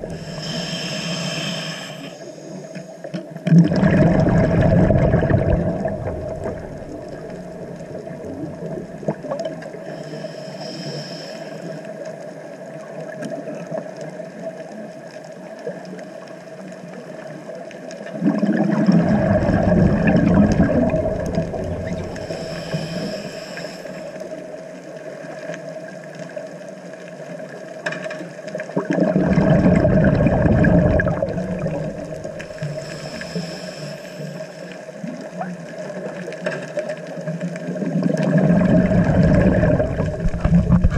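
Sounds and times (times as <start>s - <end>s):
exhaled bubbles rushing: 0.0s - 0.6s, 3.4s - 9.7s, 18.0s - 23.0s, 28.6s - 33.2s, 37.5s - 40.9s
faint breathing hisses: 0.0s - 3.1s, 9.8s - 12.0s, 21.9s - 24.4s, 32.4s - 35.0s
steady underwater hum: 0.0s - 40.9s.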